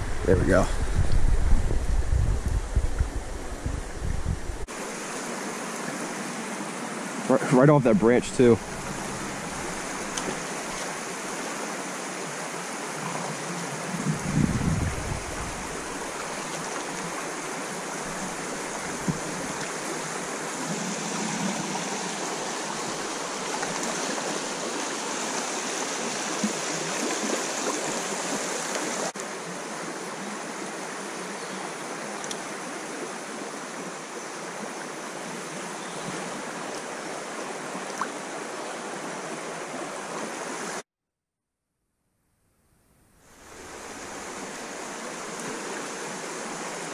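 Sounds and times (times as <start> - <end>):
creek water rushing: 0.0 - 40.8, 43.2 - 46.9.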